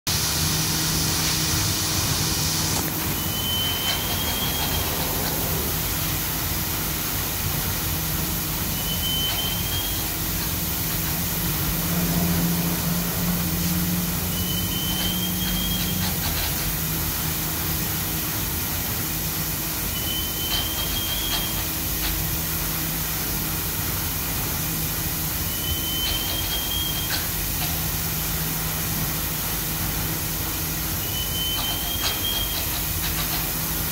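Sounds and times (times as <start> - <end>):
grain pouring hiss: 0.1 - 33.9
high rising squeak: 3.0 - 6.1, 8.7 - 10.1, 13.9 - 16.3, 19.9 - 21.6, 25.4 - 27.1, 31.0 - 32.8.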